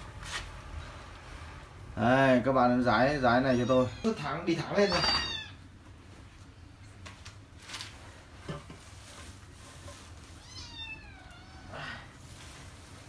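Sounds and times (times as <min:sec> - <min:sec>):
cat meowing: 0:03.4 - 0:05.6, 0:10.4 - 0:11.8.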